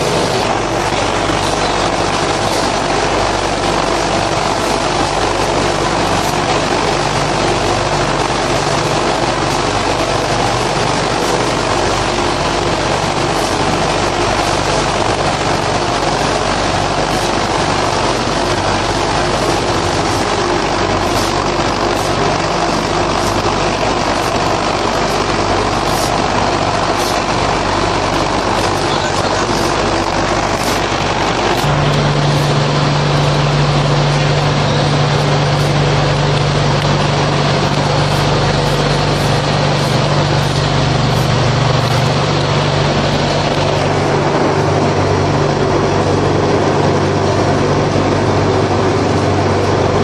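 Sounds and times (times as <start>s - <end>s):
machinery droning and humming: 0.0s - 50.0s.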